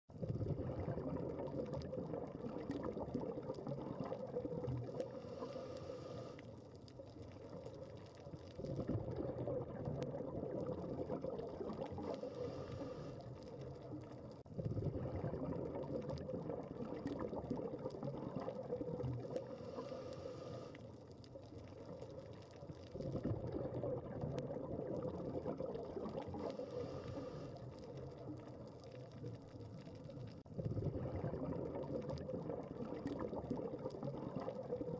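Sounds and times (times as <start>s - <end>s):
exhaled bubbles rushing: 0.1s - 5.7s, 6.9s - 20.3s, 21.3s - 34.9s
scuba regulator inhale hiss: 5.0s - 6.5s, 12.0s - 13.4s, 19.4s - 20.8s, 26.4s - 27.8s.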